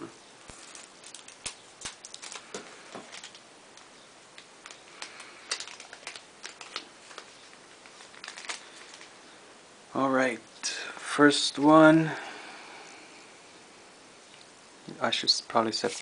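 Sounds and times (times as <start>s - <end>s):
foil wrappers crinkling: 0.5s - 9.2s, 15.6s - 16.0s.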